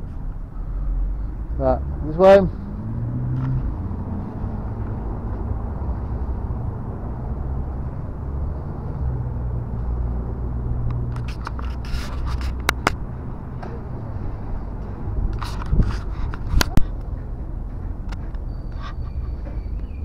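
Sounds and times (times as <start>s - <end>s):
low rumble of outdoor background noise: 0.0s - 20.0s
sharp clicks and knocks: 10.8s - 14.0s, 14.8s - 19.9s.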